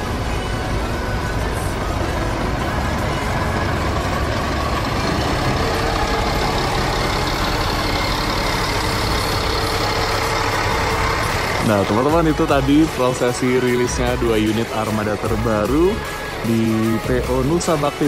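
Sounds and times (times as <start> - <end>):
diesel bus engine running: 0.0 - 18.0.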